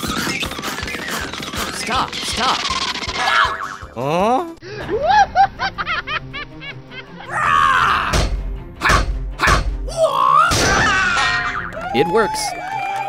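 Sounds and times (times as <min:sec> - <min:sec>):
bouncy springy chirps: 0:00.0 - 0:04.0
cheerful background music: 0:00.0 - 0:13.0
heavy whacks: 0:08.1 - 0:09.8.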